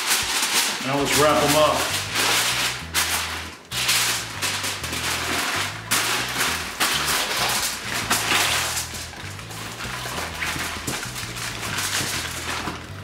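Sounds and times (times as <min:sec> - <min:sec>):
aluminium foil crinkling: 0:00.0 - 0:13.0
background music with bass: 0:00.0 - 0:13.0.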